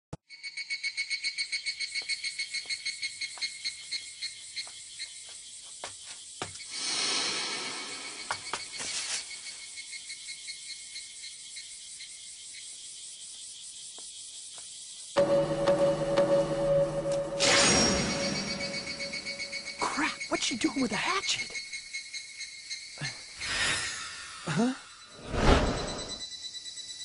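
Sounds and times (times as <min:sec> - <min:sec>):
cicadas calling: 0:00.3 - 0:15.4, 0:17.8 - 0:25.3, 0:26.0 - 0:27.0
rushing noise: 0:06.8 - 0:08.8.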